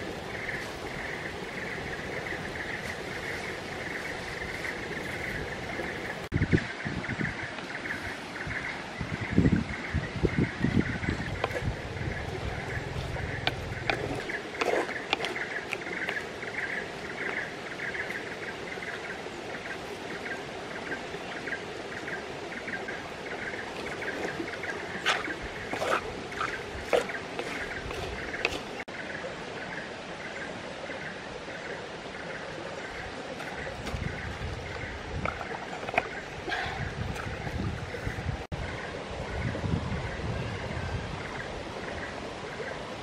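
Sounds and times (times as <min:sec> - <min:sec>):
stream running over rocks: 0:00.0 - 0:43.0
spoon stirring in pot: 0:11.4 - 0:17.4, 0:23.7 - 0:28.8.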